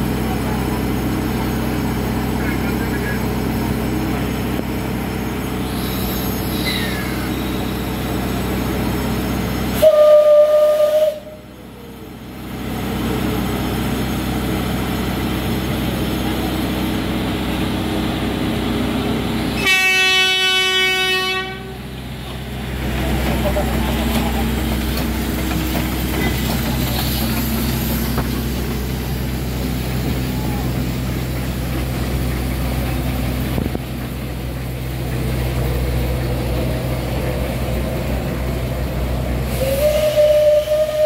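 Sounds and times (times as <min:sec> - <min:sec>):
buzzy train horn blast: 0:09.8 - 0:11.5, 0:19.5 - 0:21.9, 0:39.5 - 0:41.0
steam train whistle blast: 0:09.8 - 0:11.5, 0:19.6 - 0:21.8, 0:39.4 - 0:41.0.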